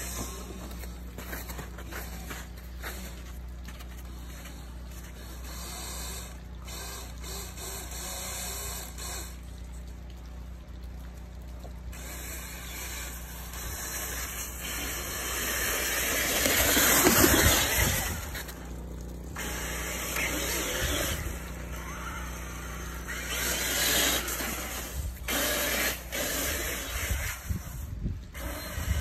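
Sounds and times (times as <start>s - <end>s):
wind gusting on microphone: 26.5s - 29.0s.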